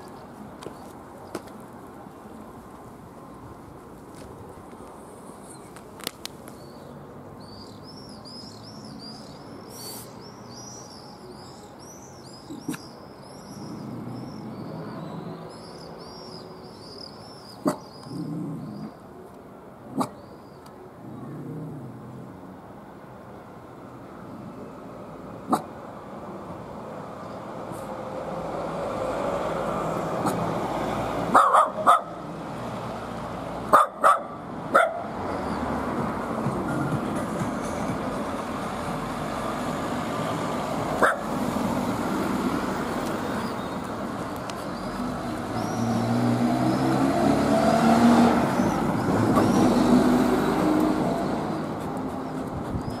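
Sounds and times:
car passing: 0:24.3 - 0:53.0
dog barking: 0:31.3 - 0:32.2, 0:33.7 - 0:35.1, 0:41.0 - 0:41.3.

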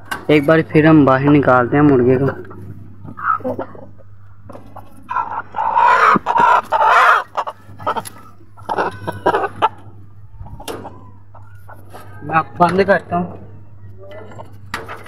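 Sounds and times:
rooster squawking loudly: 0:05.1 - 0:08.0.

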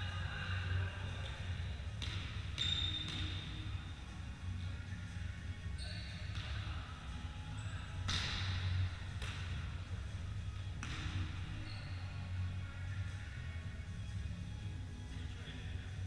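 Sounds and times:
steady low hum: 0:00.0 - 0:16.0
volleyball hit by hands: 0:08.0 - 0:09.6, 0:10.8 - 0:11.3.

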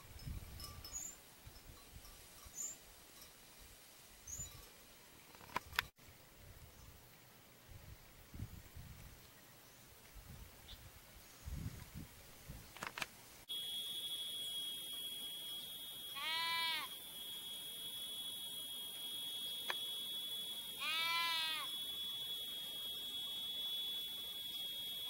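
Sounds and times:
steady high-pitched buzz: 0:13.4 - 0:25.0
bleating animal calls: 0:16.1 - 0:16.9, 0:20.8 - 0:21.8.

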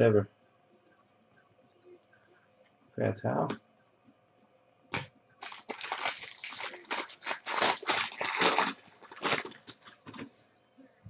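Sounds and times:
plastic wrapper crinkling: 0:05.4 - 0:10.2.

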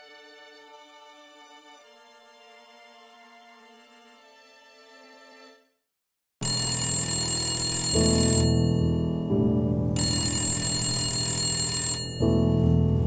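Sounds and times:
buzzy electronic ringtone: 0:06.4 - 0:09.3, 0:10.0 - 0:12.4
soft music: 0:07.7 - 0:13.0.

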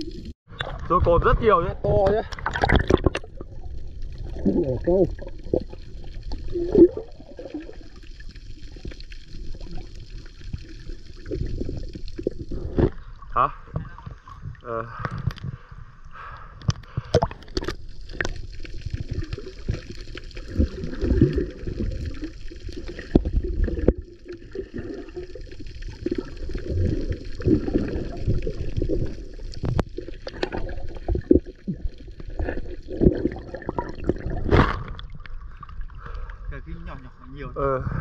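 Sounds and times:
water sloshing and gurgling: 0:00.0 - 0:38.0.

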